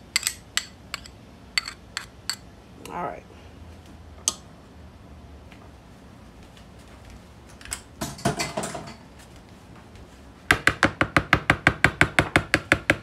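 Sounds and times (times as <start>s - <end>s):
metal spoon stirring in plastic bowl: 0.2s - 2.4s.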